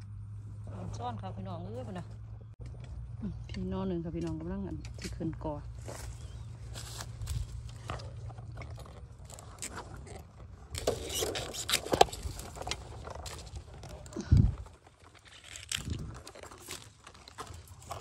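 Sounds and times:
dry twigs and leaves crackling: 4.8s - 18.0s.

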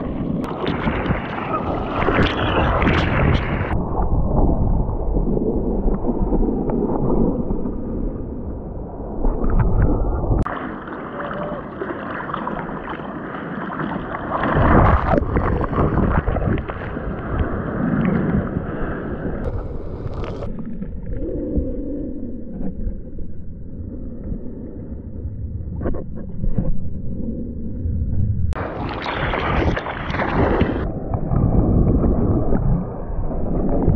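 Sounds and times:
water rushing and splashing: 0.0s - 3.8s, 9.0s - 21.2s, 28.6s - 33.9s
wind on microphone: 0.0s - 10.6s, 14.2s - 22.9s, 24.8s - 33.9s.

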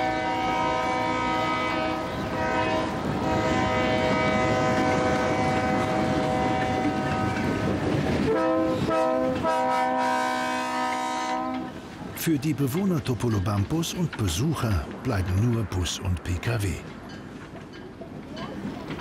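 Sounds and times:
locomotive air horn blasts: 0.0s - 7.6s, 8.3s - 11.7s
passing train rumble and clatter: 0.0s - 19.0s.

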